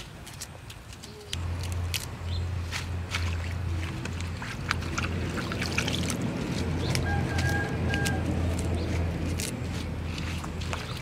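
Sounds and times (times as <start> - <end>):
water splashing in a metal bowl: 2.7 - 9.0.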